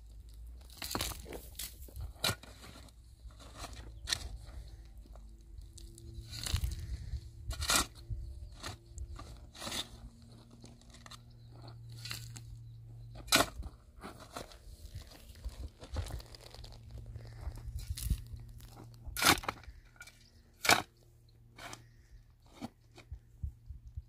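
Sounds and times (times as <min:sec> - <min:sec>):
hoe chopping stony soil: 0:00.6 - 0:04.5, 0:06.2 - 0:11.2, 0:11.9 - 0:12.5, 0:13.1 - 0:16.5, 0:17.2 - 0:21.9.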